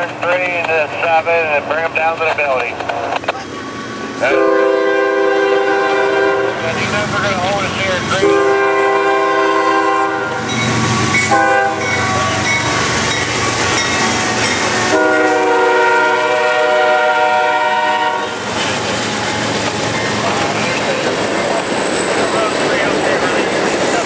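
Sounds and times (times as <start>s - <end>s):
train wheels rumbling on rails: 0.0s - 24.0s
train air horn blasts: 4.2s - 6.6s, 8.2s - 10.5s, 11.2s - 12.4s, 14.8s - 18.4s.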